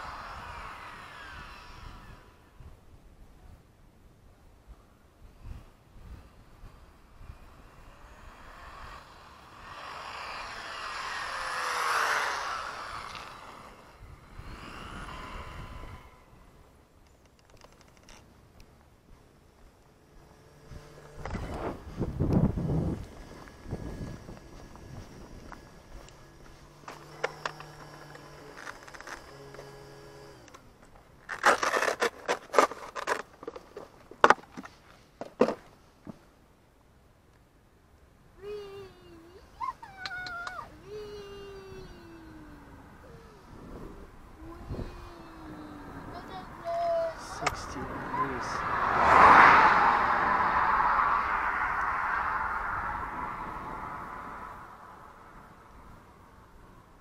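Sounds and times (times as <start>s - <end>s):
rc car motor whine passing: 0.0s - 3.0s, 6.2s - 18.3s, 19.3s - 33.6s, 38.4s - 57.0s
faint steady hum: 0.0s - 48.4s
plastic scraping and rattling: 26.9s - 29.7s, 31.2s - 35.7s.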